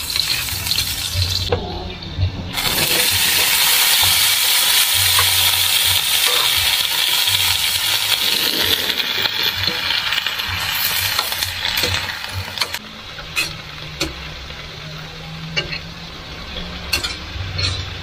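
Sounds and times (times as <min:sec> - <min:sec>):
vegetables sizzling in a wok: 0:00.0 - 0:01.6, 0:02.5 - 0:18.0
metal spatula clinking on pan: 0:13.4 - 0:14.2, 0:16.9 - 0:17.9.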